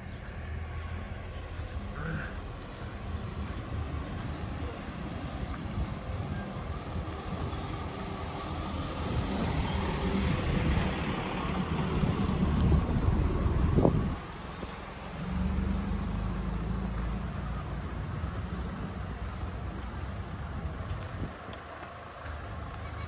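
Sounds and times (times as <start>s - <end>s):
motor vehicle rumble: 0.0s - 23.0s
wind on microphone: 2.8s - 14.8s, 18.2s - 21.7s.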